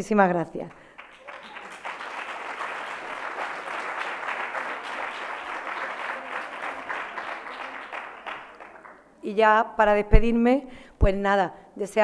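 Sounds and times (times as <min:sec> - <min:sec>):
audience applauding: 0:00.8 - 0:09.0.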